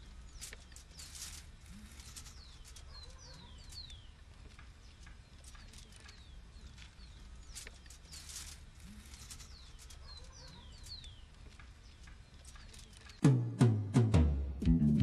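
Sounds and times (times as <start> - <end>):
faint clicks: 0.0 - 13.2
small birds chirping: 0.0 - 13.2
plucked guitar and bass music: 13.2 - 15.0.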